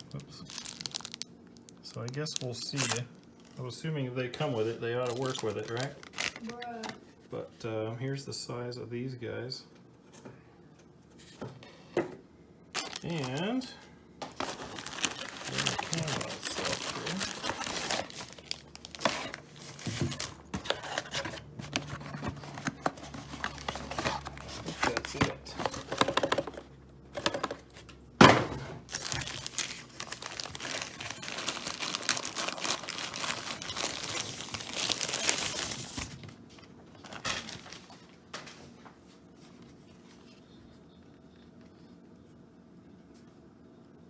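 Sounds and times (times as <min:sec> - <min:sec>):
packaging crinkling and rustling: 0:00.0 - 0:03.6, 0:04.5 - 0:06.7, 0:12.8 - 0:26.5, 0:28.9 - 0:38.6.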